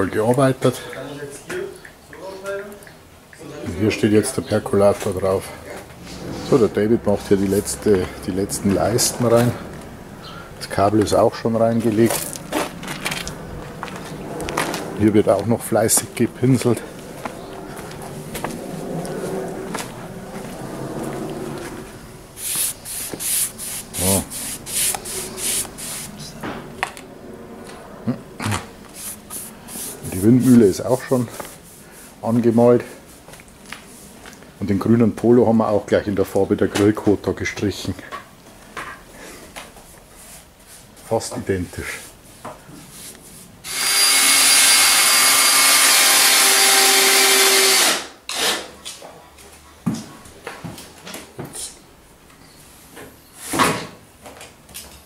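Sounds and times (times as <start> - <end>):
steady low hum: 4.3 - 34.6
paintbrush bristles scraping wood: 14.7 - 26.4, 28.8 - 32.7
electric power tool on wood: 43.6 - 48.6.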